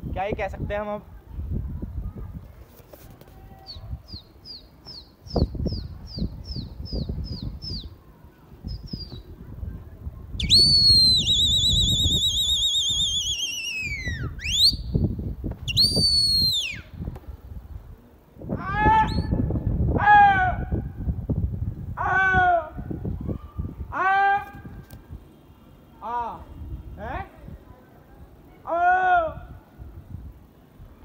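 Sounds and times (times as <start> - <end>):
person whistling loudly: 10.4 - 14.9, 15.7 - 16.9.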